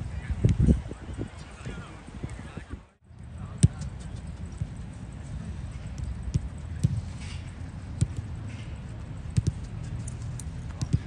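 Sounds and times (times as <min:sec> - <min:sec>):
footballs being kicked: 0:03.5 - 0:04.8, 0:05.9 - 0:07.2, 0:08.0 - 0:08.4, 0:09.3 - 0:10.0, 0:10.6 - 0:11.0.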